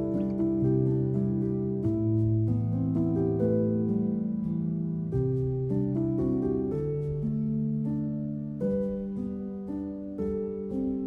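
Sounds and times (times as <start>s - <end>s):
gentle plucked melody: 0.0s - 11.0s.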